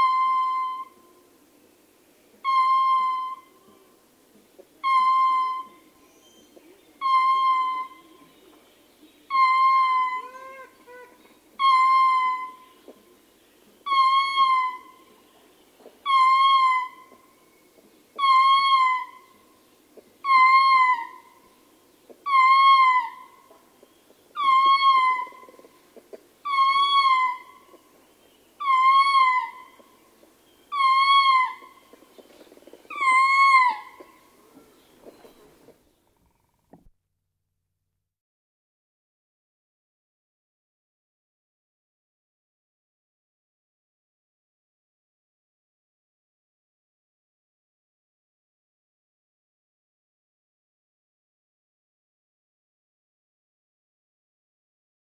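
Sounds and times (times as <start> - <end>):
lemur howling: 7.0 - 8.0, 9.3 - 12.6, 13.8 - 15.0, 16.0 - 17.1, 18.2 - 19.4, 20.2 - 21.4, 22.2 - 23.4, 24.4 - 25.7, 26.4 - 27.7, 28.6 - 29.9, 30.7 - 31.9, 32.9 - 34.8.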